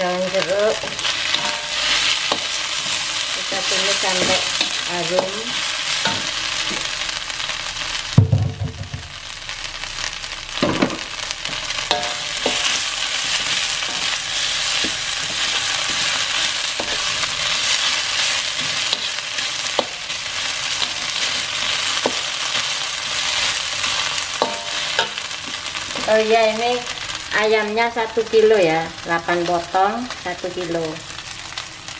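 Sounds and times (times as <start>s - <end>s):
spice paste sizzling in a wok: 0.0s - 31.9s
metal spatula scraping pan: 0.7s - 6.9s, 11.5s - 26.1s
dull thump: 8.2s - 9.1s.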